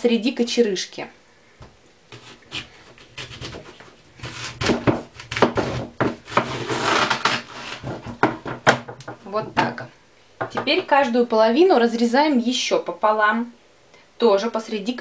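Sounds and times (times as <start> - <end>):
knife cutting cabbage: 2.1 - 8.2.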